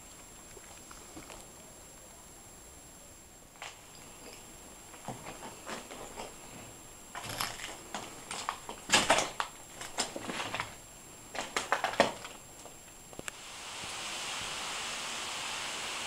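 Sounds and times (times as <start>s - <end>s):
rubble crunching and crackling: 7.1s - 13.3s.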